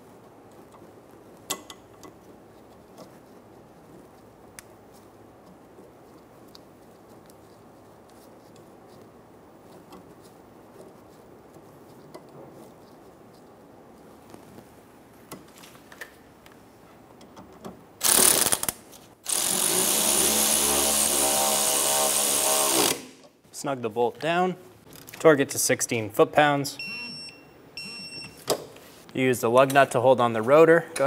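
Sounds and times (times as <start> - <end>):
cordless power tool spinning: 19.3 - 23.1.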